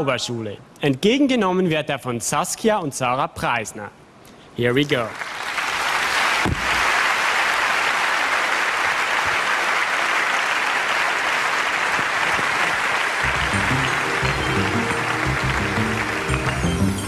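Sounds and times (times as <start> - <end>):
audience applauding: 5.1 - 17.0.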